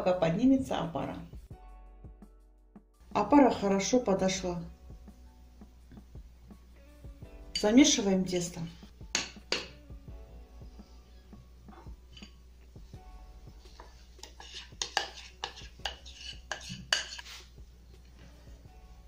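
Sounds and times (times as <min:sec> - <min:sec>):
spoon scraping glass bowl: 0:11.8 - 0:12.4, 0:13.7 - 0:17.5.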